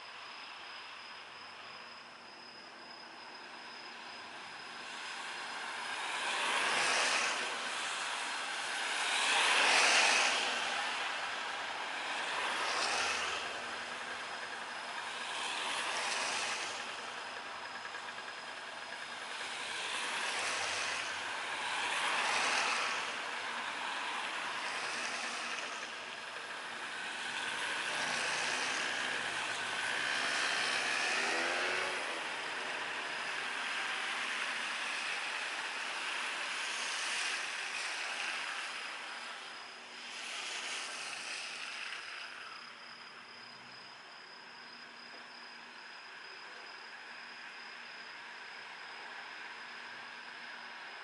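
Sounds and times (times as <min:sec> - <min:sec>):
engine whine gliding in pitch: 0:00.1 - 0:51.0
tyres swishing on wet road: 0:04.8 - 0:18.0, 0:18.9 - 0:42.6.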